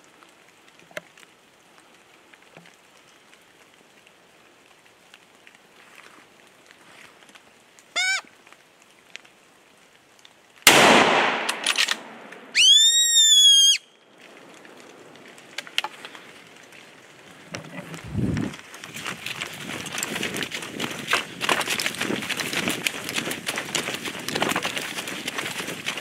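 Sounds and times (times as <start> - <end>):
steady rain hiss: 0.0 - 26.0
deer fawn call bleating: 8.0 - 8.3
rifle shot with rolling echo: 10.6 - 12.6.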